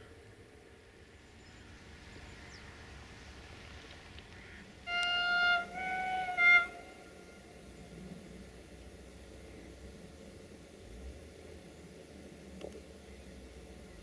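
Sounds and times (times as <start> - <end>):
faint background noise: 0.0 - 14.0
locomotive horn blasts: 4.8 - 7.7.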